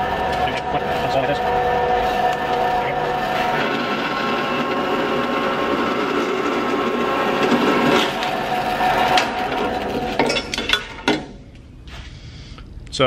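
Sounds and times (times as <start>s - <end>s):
band saw cutting metal: 0.0s - 11.2s.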